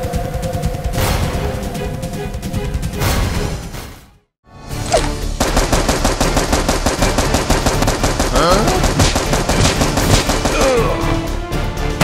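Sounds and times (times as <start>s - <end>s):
automatic gunfire: 5.4s - 10.8s.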